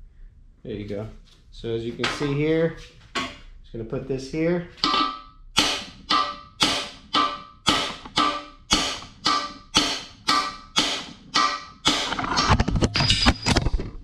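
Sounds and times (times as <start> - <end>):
hammer striking metal: 4.8 - 13.5.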